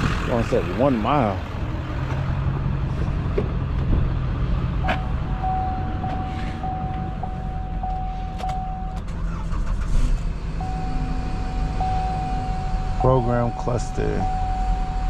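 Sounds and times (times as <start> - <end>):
car engine running: 0.0 - 15.0
high electronic warning tone: 4.8 - 9.0, 10.6 - 15.0.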